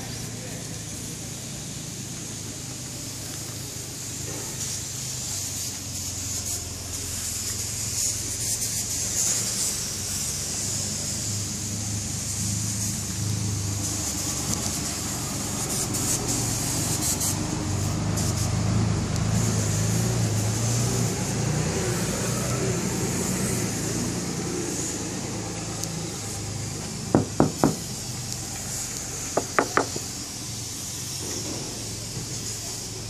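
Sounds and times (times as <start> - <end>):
knocks on painted metal: 27.1 - 28.0, 29.4 - 30.1.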